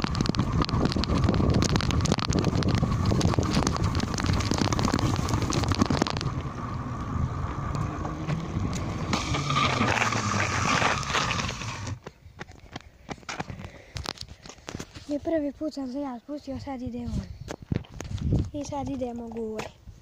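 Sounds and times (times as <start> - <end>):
bicycle rattling: 0.0 - 12.0
wind on microphone: 0.0 - 12.0, 16.8 - 19.1
tyres rolling hiss on asphalt: 3.8 - 12.0.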